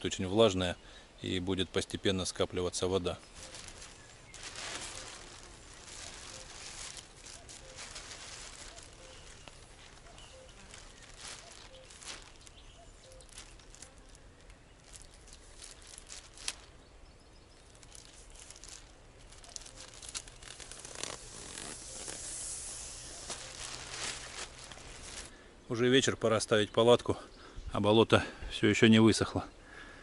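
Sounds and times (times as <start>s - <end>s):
plastic bag rustling and crinkling: 2.3s - 25.4s.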